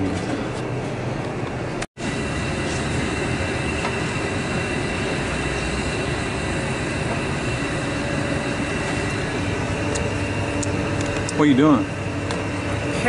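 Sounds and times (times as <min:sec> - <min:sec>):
loud machinery noise: 0:00.0 - 0:13.0
high machine whining tones: 0:02.0 - 0:13.0.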